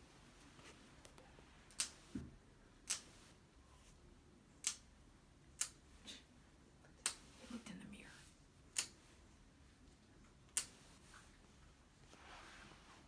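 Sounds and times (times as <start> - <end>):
nail clippers clicking: 4.6 - 4.8, 5.6 - 5.8, 8.7 - 9.0.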